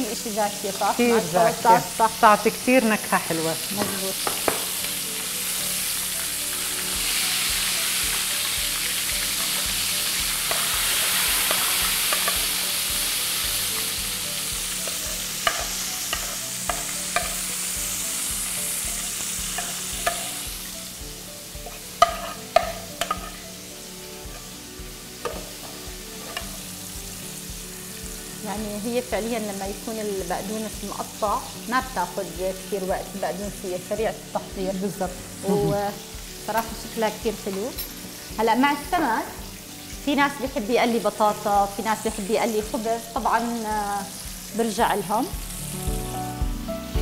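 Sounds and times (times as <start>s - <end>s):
fish frying in oil: 0.0s - 46.1s
tongs and dishes clinking: 11.5s - 12.5s, 14.8s - 17.5s, 19.6s - 20.4s, 21.6s - 23.4s, 25.2s - 26.6s, 36.6s - 36.8s, 37.4s - 38.2s.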